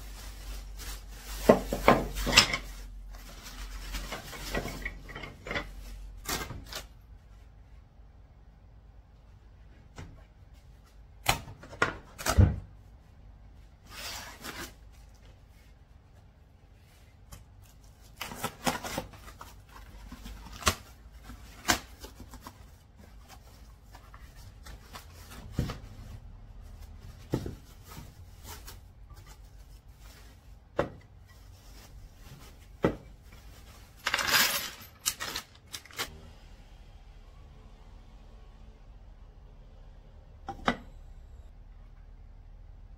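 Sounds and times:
cardboard and plastic rustling: 0.0s - 7.6s, 13.7s - 36.2s.

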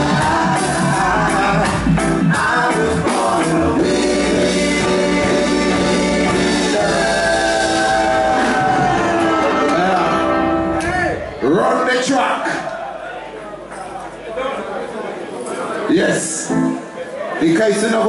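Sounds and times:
vocal group singing in harmony: 0.0s - 10.7s
reggae band playing: 0.0s - 11.9s, 16.2s - 17.4s.

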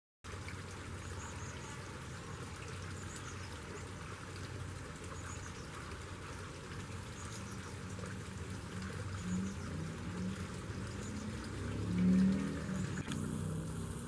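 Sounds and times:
low hum: 8.3s - 14.0s.

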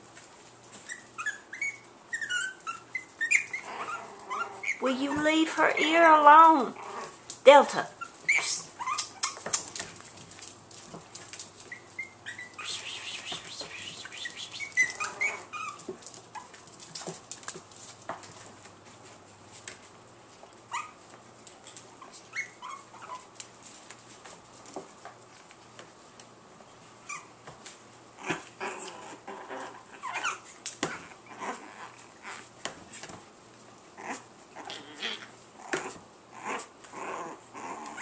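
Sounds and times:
puppies scrambling on blanket: 0.0s - 38.0s
puppies whining and yipping: 0.7s - 6.2s, 7.9s - 9.8s, 11.6s - 16.6s, 20.7s - 21.0s, 22.0s - 23.4s, 27.0s - 27.4s, 28.2s - 32.6s, 34.0s - 38.0s.

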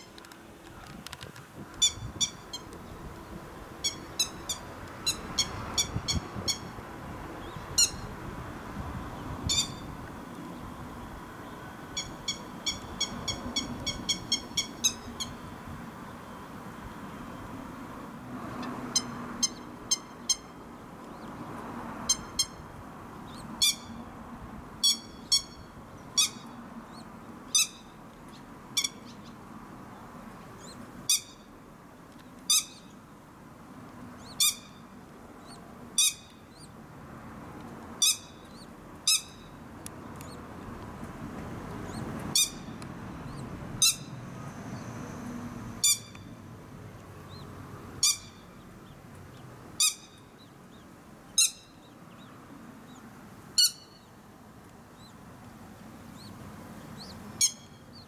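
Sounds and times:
lapwing call notes: 11.4s - 15.4s.

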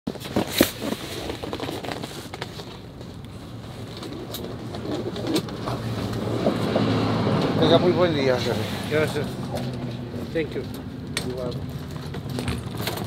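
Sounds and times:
cardboard boxes clicking and knocking: 0.1s - 6.9s, 11.4s - 13.0s
low street hum: 0.2s - 13.0s.

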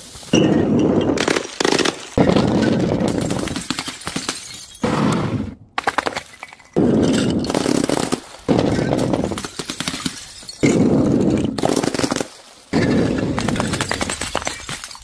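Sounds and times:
glass crunching and crackling: 0.3s - 4.8s, 9.0s - 12.4s, 13.5s - 15.0s.

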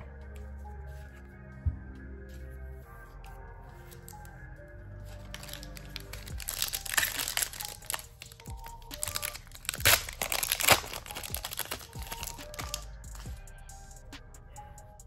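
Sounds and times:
background music: 0.0s - 15.0s
foil wrapper crinkling: 5.3s - 12.8s.

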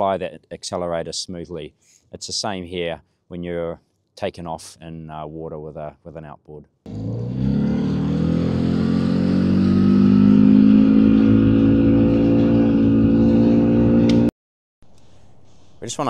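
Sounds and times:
outboard motor accelerating: 6.9s - 14.3s.

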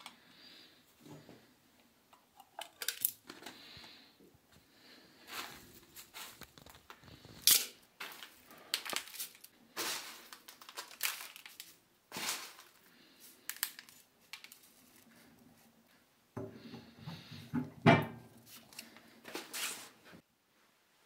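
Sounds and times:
dry flakes rustling into metal: 6.0s - 15.1s.

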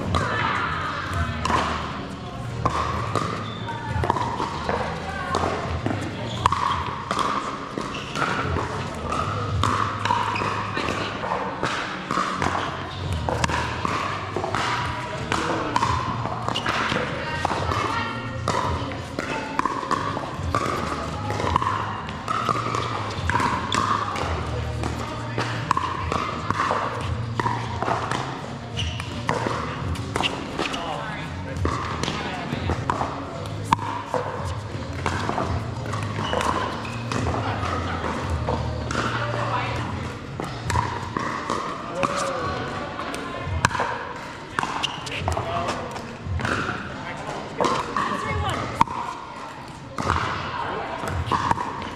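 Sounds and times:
paddles striking pickleball: 0.0s - 51.9s
paddles striking plastic ball: 31.6s - 42.4s.

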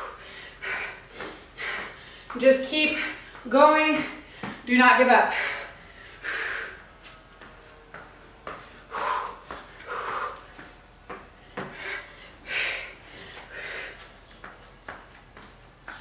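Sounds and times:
woman breathing hard: 0.0s - 3.4s, 5.3s - 7.2s, 8.6s - 14.3s.

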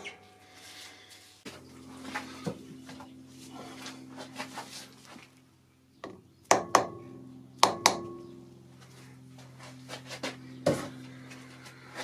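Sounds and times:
low steady hum: 0.0s - 12.0s
hammer tapping metal plate: 6.0s - 8.3s.

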